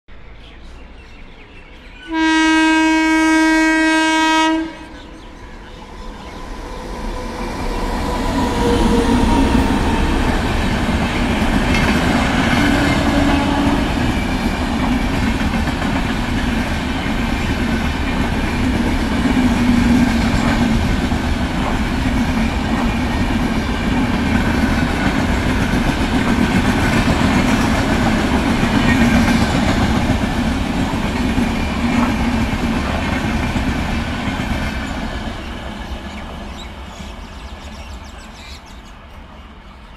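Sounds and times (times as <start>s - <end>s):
train passing with rumble: 2.0s - 39.9s
locomotive horn blast: 2.1s - 5.1s, 12.6s - 14.1s.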